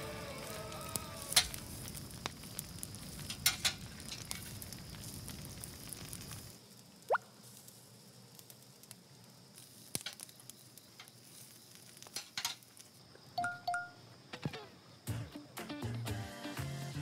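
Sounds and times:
meat crackling over charcoal: 0.0 - 13.2.

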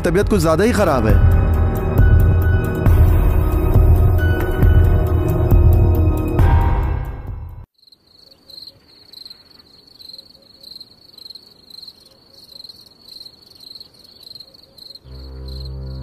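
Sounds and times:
cricket chirping: 7.7 - 16.0.

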